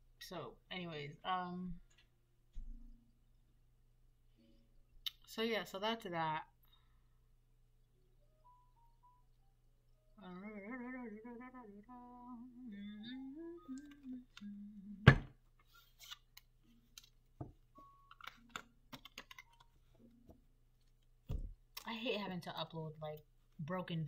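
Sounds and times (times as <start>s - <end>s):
woman humming a tune: 10.2s - 15.1s
cards being shuffled: 15.6s - 17.2s, 18.1s - 19.8s.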